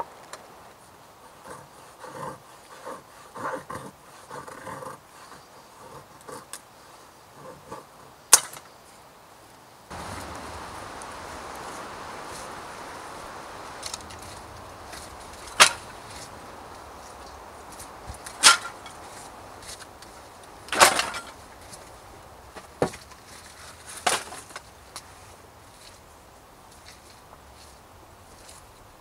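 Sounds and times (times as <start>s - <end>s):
soft steady hiss: 0.0s - 29.0s
wood pieces knocking on earth: 9.9s - 21.9s, 22.5s - 24.7s.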